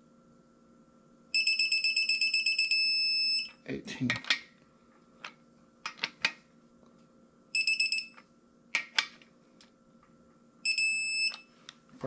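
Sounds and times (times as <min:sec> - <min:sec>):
high electronic beeps: 0:07.6 - 0:08.2, 0:10.7 - 0:11.4.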